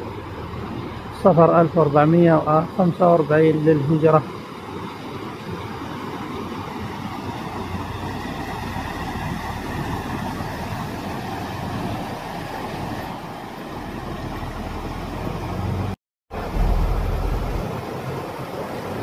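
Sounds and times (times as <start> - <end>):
flood water rushing: 0.0 - 19.0
vehicle engines rumbling: 13.7 - 17.9.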